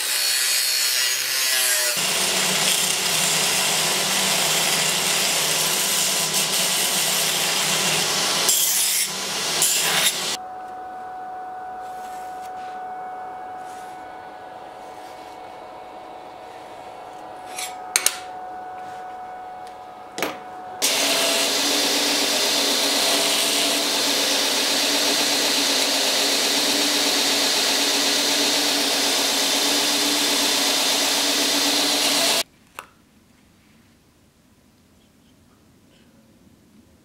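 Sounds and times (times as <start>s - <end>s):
belt grinder running: 1.0s - 10.4s, 20.8s - 32.4s.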